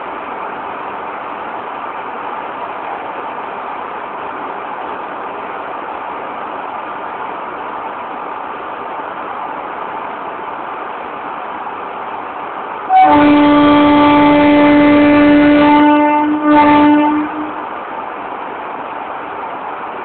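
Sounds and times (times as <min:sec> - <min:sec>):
locomotive air horn blasts: 0:12.9 - 0:17.7.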